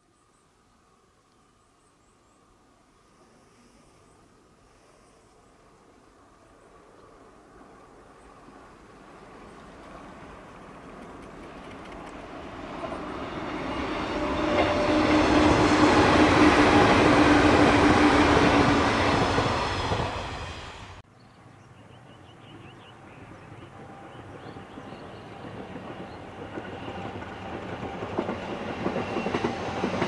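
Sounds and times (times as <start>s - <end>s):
distant train: 2.3s - 30.0s
electric train passing by: 5.6s - 21.0s, 21.8s - 30.0s.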